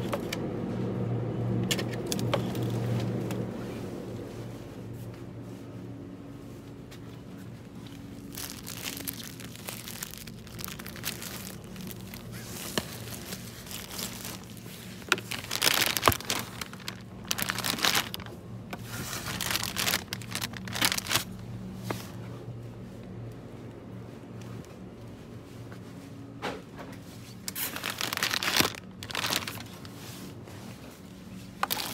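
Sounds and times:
steady low hum: 0:00.0 - 0:31.9
packaging crinkling: 0:07.8 - 0:21.4, 0:27.5 - 0:30.2, 0:31.6 - 0:31.9.

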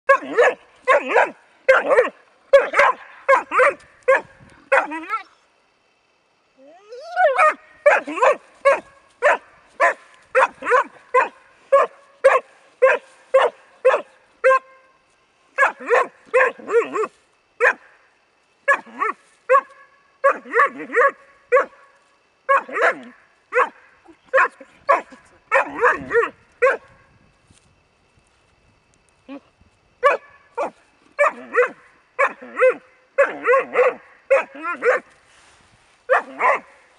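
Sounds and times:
puppy barking: 0:00.1 - 0:05.0, 0:07.3 - 0:14.7, 0:15.6 - 0:17.8, 0:18.7 - 0:21.8, 0:22.5 - 0:26.9, 0:30.0 - 0:35.1, 0:36.1 - 0:36.7.

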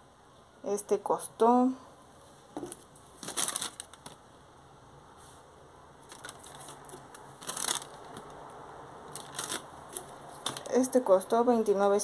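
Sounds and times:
packaging crinkling and rustling: 0:02.6 - 0:04.2, 0:06.0 - 0:10.8.

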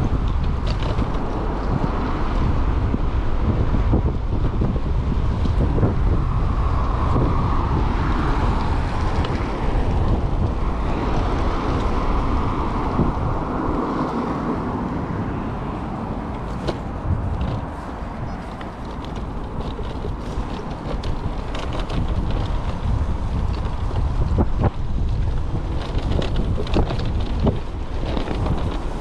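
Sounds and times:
sharp clicks and rattles: 0:00.0 - 0:02.0, 0:16.3 - 0:29.0
bike rumble on trail: 0:00.0 - 0:29.0
wind buffeting microphone: 0:00.0 - 0:29.0.

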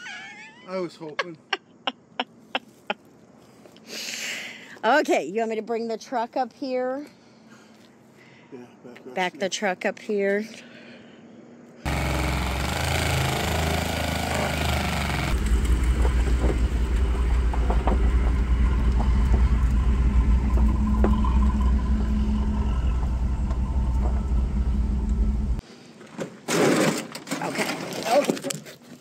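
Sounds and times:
truck engine running: 0:11.9 - 0:25.6.

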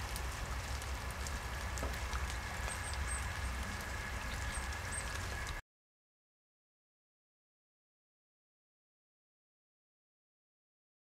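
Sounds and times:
rain pattering into puddle: 0:00.0 - 0:05.6.

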